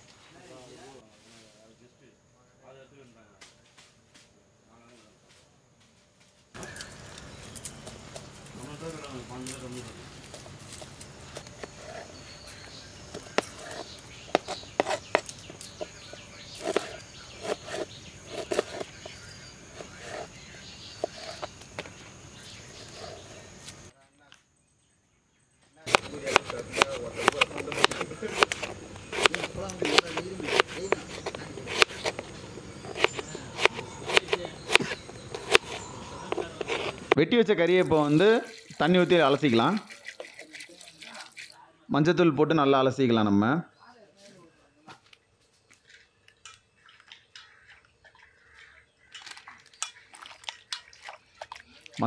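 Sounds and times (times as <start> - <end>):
knife chopping on wooden board: 13.2 - 16.0, 16.6 - 20.3, 25.9 - 37.2.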